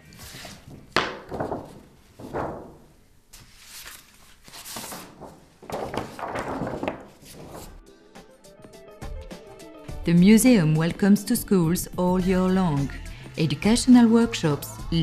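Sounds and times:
paper sheets rustling: 0.0 - 7.8.

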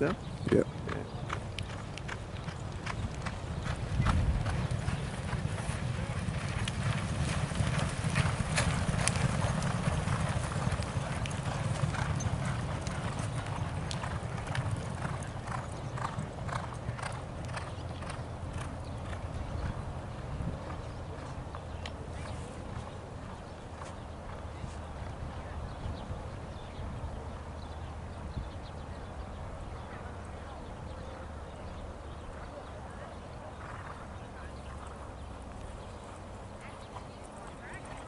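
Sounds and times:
horses galloping hoofbeats: 0.0 - 38.0.

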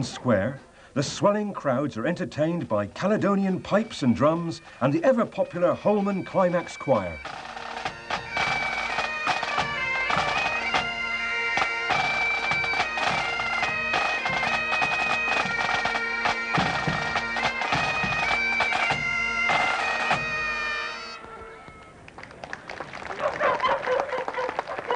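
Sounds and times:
bagpipes playing melody with drones: 3.0 - 22.0
snare drums beating: 16.6 - 20.3.

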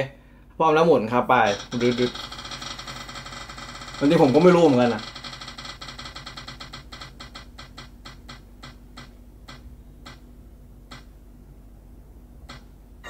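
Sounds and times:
spinning wheel app ticking: 1.5 - 10.2.

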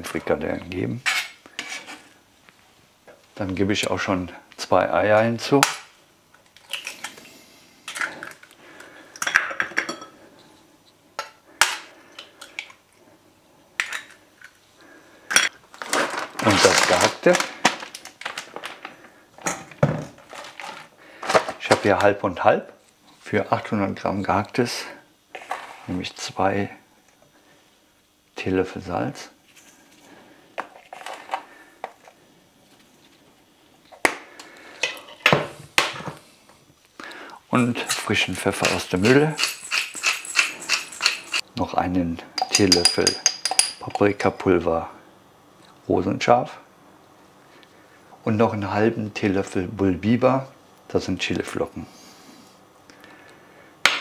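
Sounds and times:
bowl and utensils clinking: 37.6 - 41.4, 42.4 - 44.1
eggs cracking against bowl: 37.9 - 41.4.

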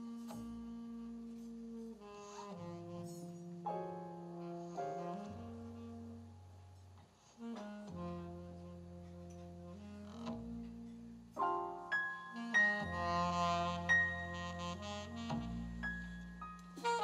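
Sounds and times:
alto saxophone long notes: 0.0 - 17.0
double bass: 0.0 - 17.0.

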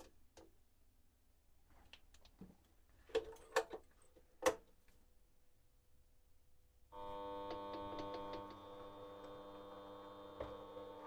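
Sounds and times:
lathe motor humming and whining: 7.0 - 11.0.

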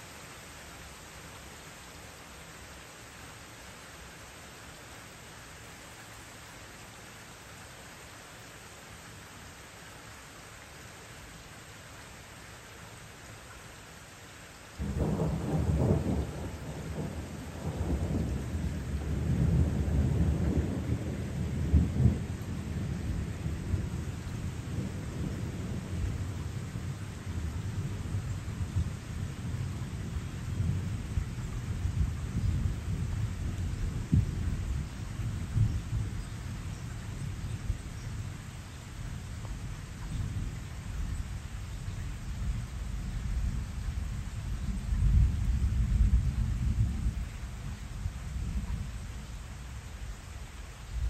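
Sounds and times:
steady rain: 0.0 - 51.0
thunder rumbling: 14.8 - 38.3.

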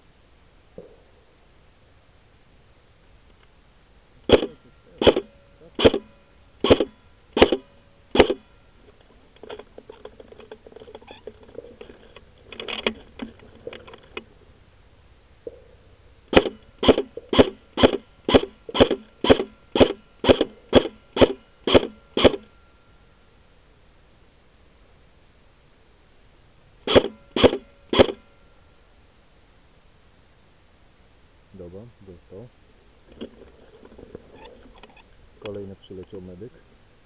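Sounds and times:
airsoft rifle shots: 4.2 - 8.5, 16.3 - 22.5, 26.8 - 28.3
rifle handling rustling: 8.2 - 14.3, 33.0 - 35.1.

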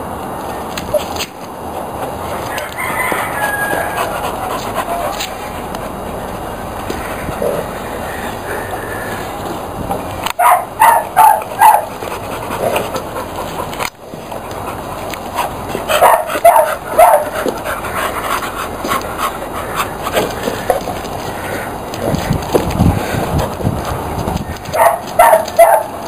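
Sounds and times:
dog barking: 10.4 - 11.9, 16.0 - 17.3, 24.7 - 26.0.

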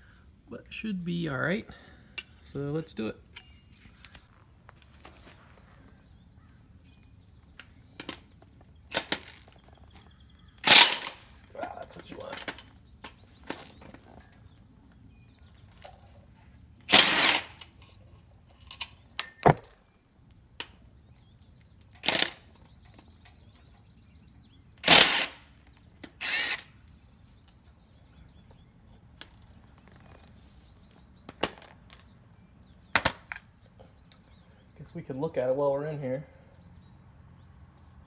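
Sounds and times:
impact wrench hammering: 18.8 - 19.9.

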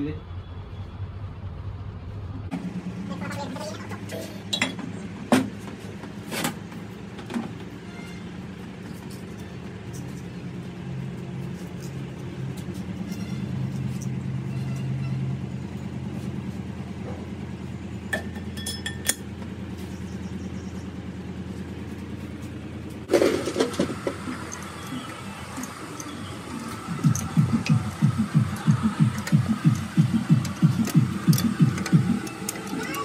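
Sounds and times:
low machine hum: 0.0 - 33.0.

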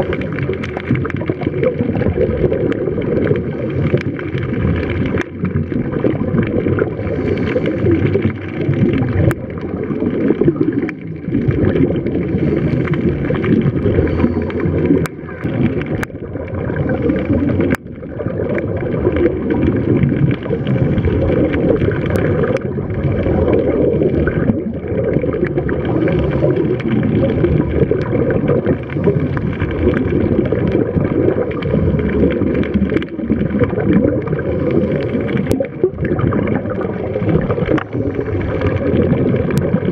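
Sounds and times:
underwater rushing and bubbling: 0.0 - 39.9.

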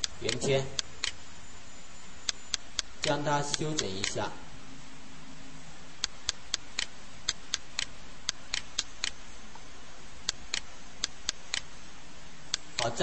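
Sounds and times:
computer mouse clicking: 6.0 - 9.2, 10.3 - 11.7.

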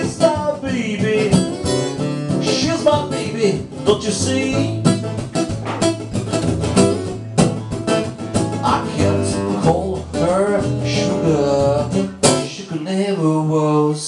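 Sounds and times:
sliding guitar melody: 0.0 - 13.9
acoustic guitars strumming: 0.0 - 14.0.

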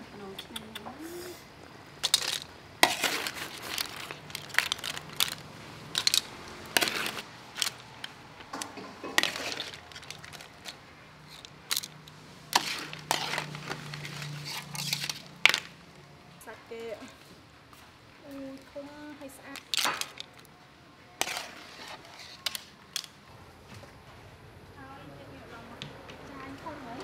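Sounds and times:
clam shells clattering on metal: 2.0 - 13.6, 19.5 - 20.5.

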